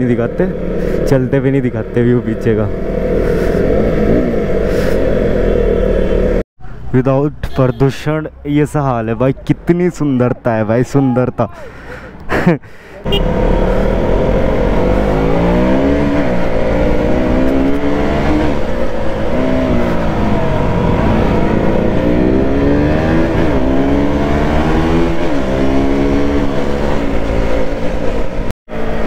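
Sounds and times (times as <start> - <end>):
motorcycle engine accelerating: 0.0 - 6.4, 13.1 - 29.0
wind and road noise: 0.0 - 29.0.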